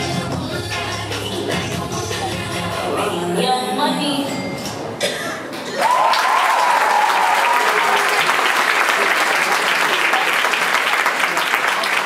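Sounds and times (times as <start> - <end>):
audience applauding: 5.7 - 12.0
high held cheer: 5.7 - 12.0.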